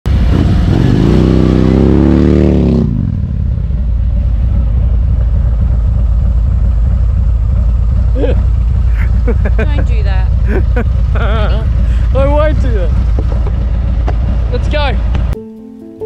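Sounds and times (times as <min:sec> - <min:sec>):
motorcycle low rumble: 0:00.0 - 0:15.4
motorcycle engine revving: 0:00.1 - 0:15.4.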